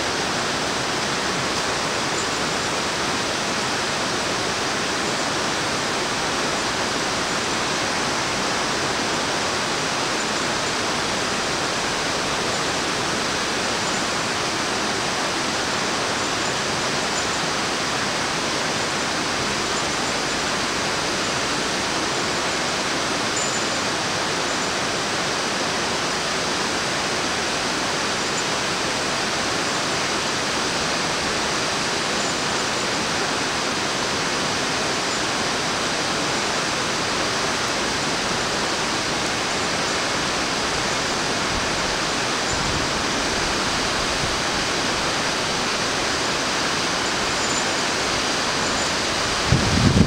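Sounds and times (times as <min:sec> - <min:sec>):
river water rushing: 0:00.0 - 0:50.0
wind buffeting microphone: 0:49.1 - 0:50.0.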